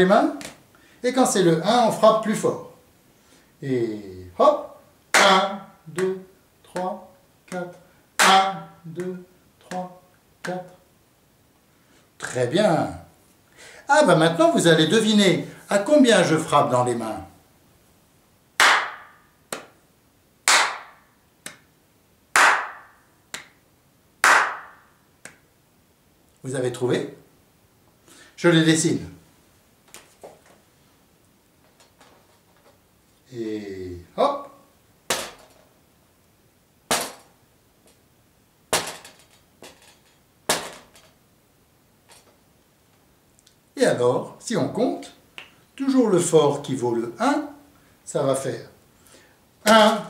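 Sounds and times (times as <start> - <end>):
hand claps in a steady beat: 5.1 - 6.2, 7.5 - 9.1, 18.6 - 19.8, 20.4 - 21.7, 22.3 - 23.6, 24.2 - 25.4.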